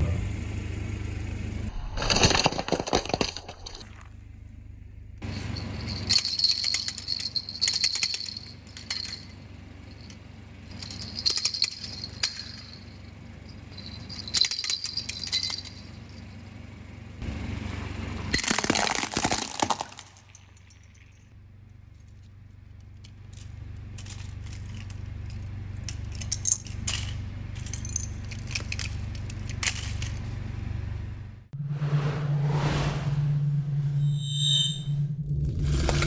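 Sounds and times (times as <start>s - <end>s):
plastic clapper toys rattling: 5.2s - 16.0s, 23.0s - 30.2s.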